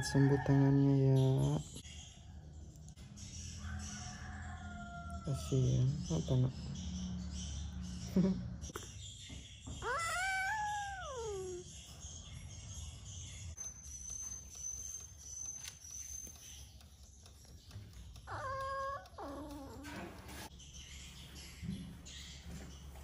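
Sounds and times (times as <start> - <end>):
kitten meowing: 9.8 - 11.6, 18.3 - 19.9.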